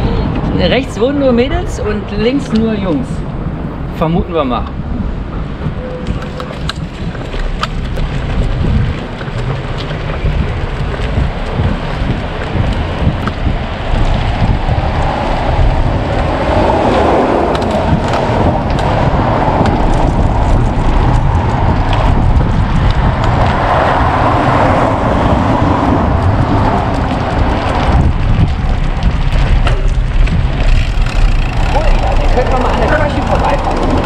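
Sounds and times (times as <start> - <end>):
rushing road noise: 0.0 - 34.0
wind buffeting microphone: 0.0 - 34.0.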